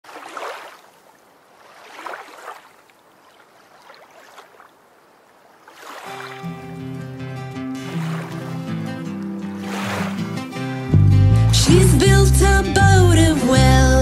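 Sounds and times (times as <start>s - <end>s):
sea waves washing: 0.1s - 11.6s
music: 6.2s - 14.0s.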